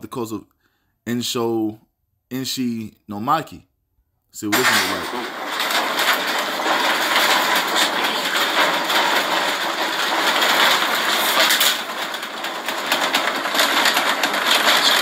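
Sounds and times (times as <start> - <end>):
furniture and objects rattling: 4.5 - 15.0.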